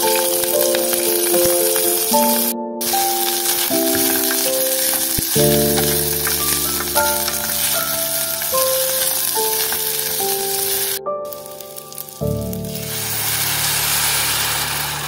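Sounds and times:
background music with held notes: 0:00.0 - 0:15.0
rice sizzling in a metal pot: 0:00.0 - 0:15.0
wooden spoon stirring: 0:03.3 - 0:10.7.

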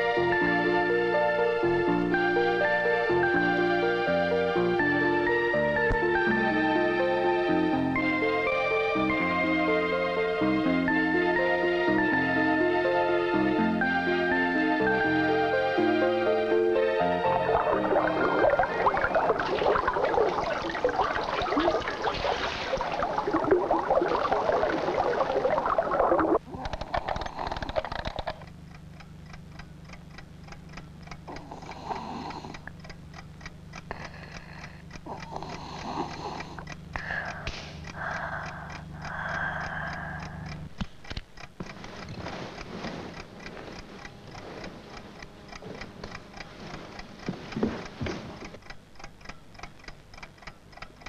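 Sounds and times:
low hum: 0:00.0 - 0:49.6
clock ticking: 0:00.0 - 0:51.0
water sloshing and splashing: 0:17.6 - 0:26.4.

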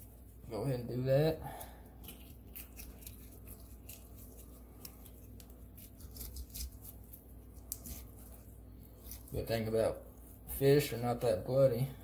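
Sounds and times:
knife clicking and scraping fish: 0:02.0 - 0:08.1.

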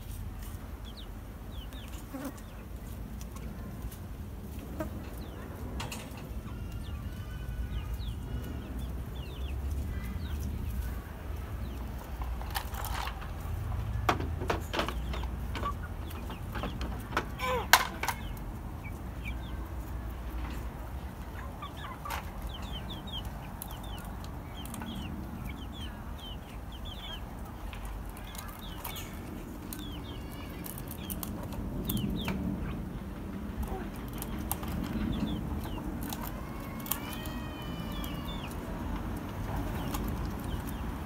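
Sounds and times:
chickens clucking: 0:00.0 - 0:41.0
sharp clicks and knocks: 0:12.1 - 0:18.5.

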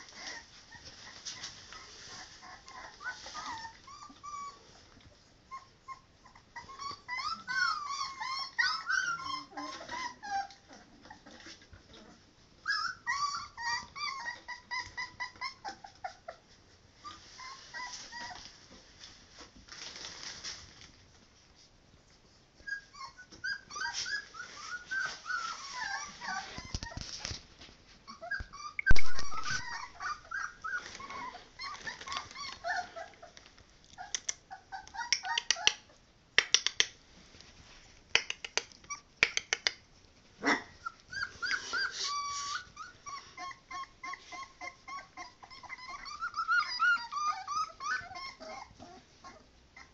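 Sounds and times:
puppies whimpering and yelping: 0:00.0 - 0:18.8, 0:22.2 - 0:27.4, 0:28.0 - 0:36.0, 0:38.8 - 0:39.2, 0:40.4 - 0:49.9
sharp clicks: 0:36.4 - 0:37.0.

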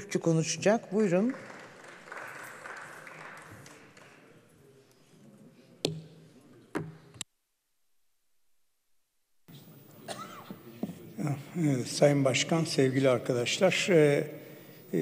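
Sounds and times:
assembly hall background noise: 0:00.0 - 0:07.3, 0:09.5 - 0:15.0.

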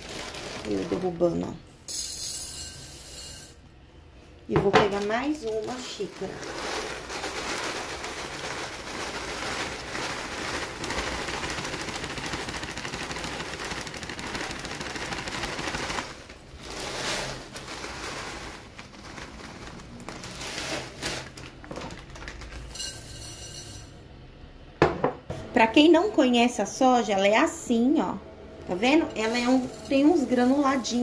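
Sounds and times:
granules rattling into a glass bowl: 0:01.9 - 0:03.6, 0:05.5 - 0:16.2, 0:22.2 - 0:24.0
granules pouring into a mug: 0:05.4 - 0:23.9.

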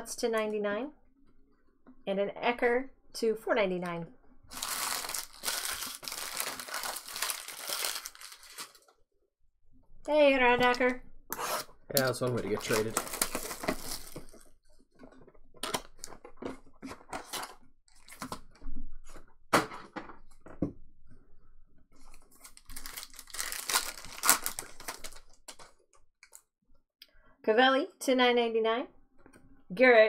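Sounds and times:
plastic wrapper crinkling and tearing: 0:04.5 - 0:08.9, 0:12.0 - 0:14.5, 0:17.2 - 0:18.4, 0:22.2 - 0:26.5.

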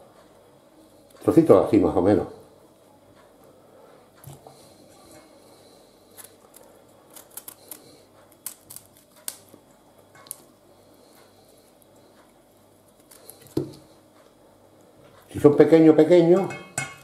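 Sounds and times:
cauliflower snapping and crackling: 0:06.2 - 0:09.6.

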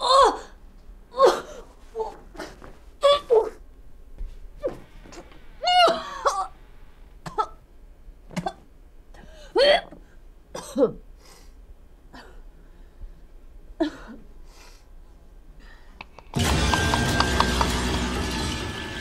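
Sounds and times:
woman coughing: 0:10.6 - 0:11.0.

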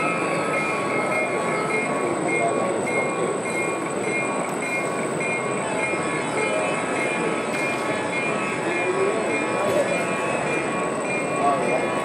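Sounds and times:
crowd chatter: 0:00.0 - 0:12.0.

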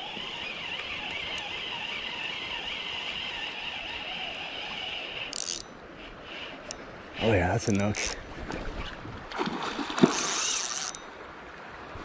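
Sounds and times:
fishing reel drag buzzing: 0:00.0 - 0:06.8, 0:07.8 - 0:08.2, 0:10.0 - 0:11.0
river water noise: 0:00.0 - 0:12.0.

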